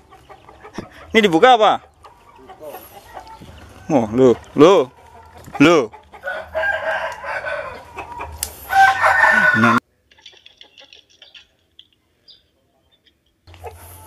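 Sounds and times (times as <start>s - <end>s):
hens clucking: 0.0s - 11.9s, 13.0s - 14.0s
roosters crowing: 2.1s - 9.8s.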